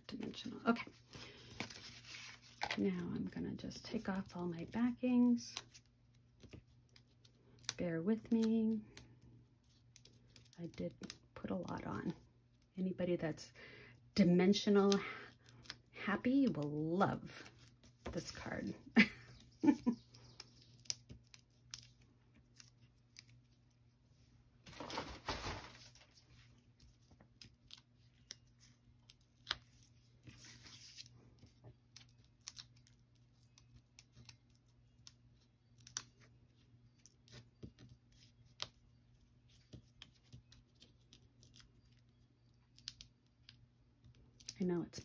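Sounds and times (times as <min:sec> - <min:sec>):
paper backing peeling: 0:00.9 - 0:02.8, 0:24.6 - 0:31.1.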